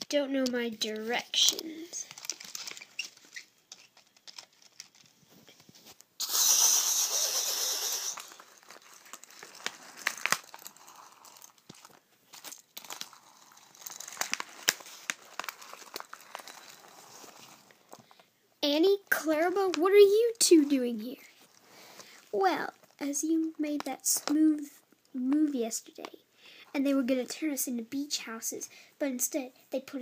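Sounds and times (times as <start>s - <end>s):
toy engine clicks: 6.3s - 8.5s.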